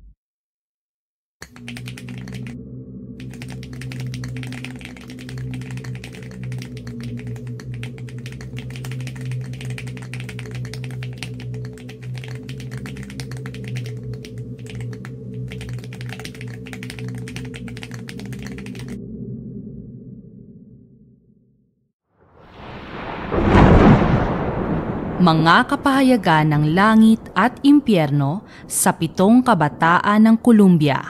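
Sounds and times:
rapid typing clicks: 1.4 - 2.6, 3.2 - 19.0
low steady drone: 1.5 - 21.2.

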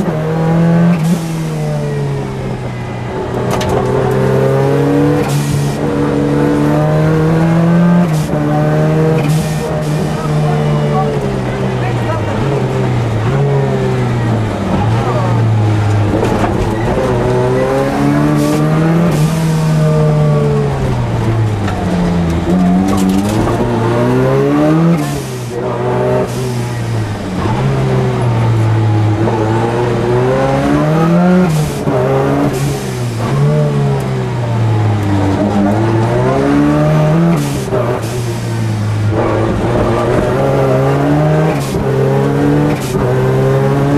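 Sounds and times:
rally car engine revving: 0.0 - 43.9.

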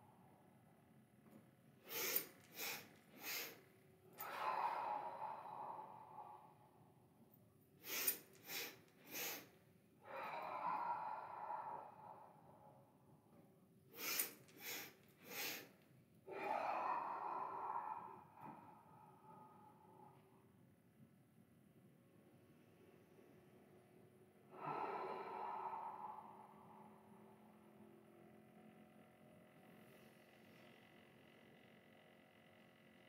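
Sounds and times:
long exhalation: 1.8 - 3.6, 4.2 - 6.8, 7.8 - 12.9, 13.9 - 15.7, 24.5 - 27.0
sniffed inhalations: 1.8 - 3.6, 7.8 - 12.3, 13.9 - 18.8.

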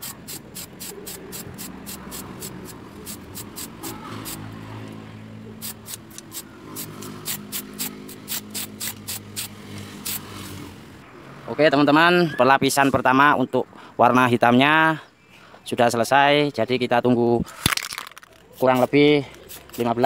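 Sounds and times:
spray paint can bursts: 0.0 - 4.6, 5.6 - 10.6, 17.6 - 20.0.

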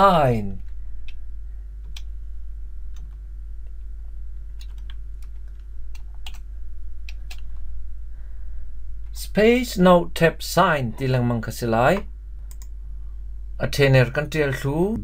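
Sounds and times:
low hum: 0.0 - 15.0
keyboard typing: 4.6 - 6.4.

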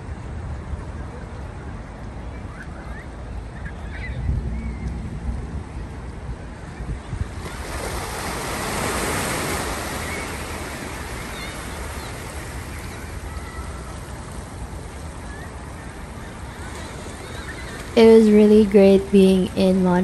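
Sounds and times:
wave washing over rocks: 7.3 - 20.0.

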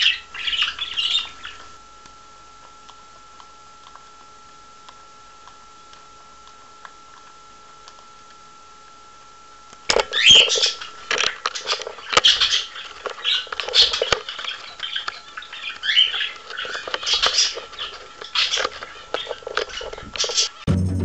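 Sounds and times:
cockatiel chirping: 0.0 - 1.7, 10.1 - 10.9, 11.5 - 18.6
faint electronic whine: 0.0 - 21.0
scratching and rustling: 11.0 - 20.6.

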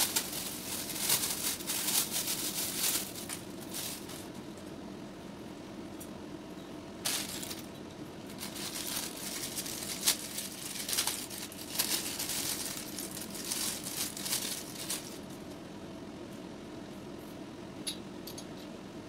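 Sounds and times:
plastic packaging crinkling: 0.0 - 4.4, 7.0 - 15.4.

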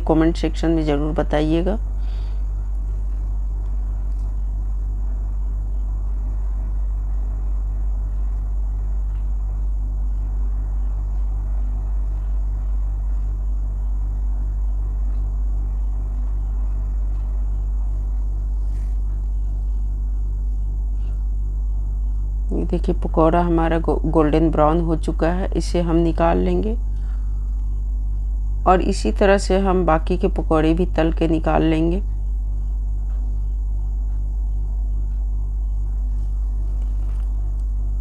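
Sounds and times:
low throbbing rumble: 0.0 - 38.0.

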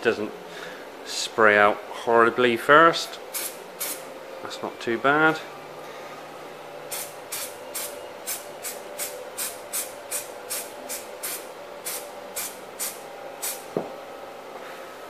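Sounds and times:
aerosol spray can hissing: 3.3 - 4.0, 6.9 - 13.6.

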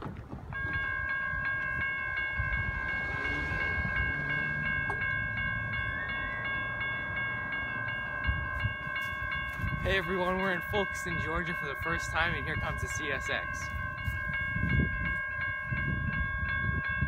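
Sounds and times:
low rumble of wind: 0.0 - 17.0
crossing bell ringing: 0.5 - 17.0.

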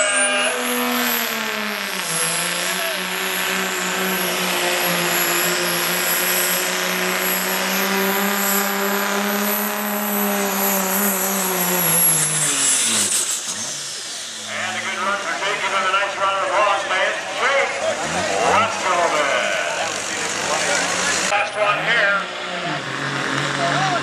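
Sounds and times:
high turbo whistle: 0.0 - 16.4
diesel engine at high revs: 0.0 - 24.0.

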